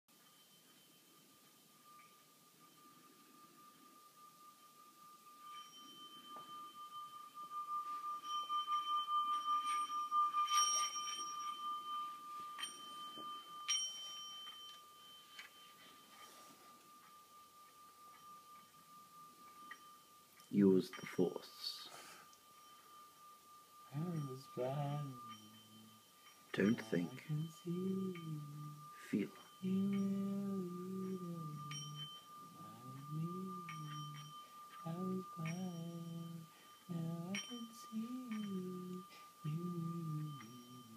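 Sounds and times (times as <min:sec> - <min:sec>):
singing bowl ringing: 0:00.1 - 0:40.9
man humming: 0:26.6 - 0:40.9.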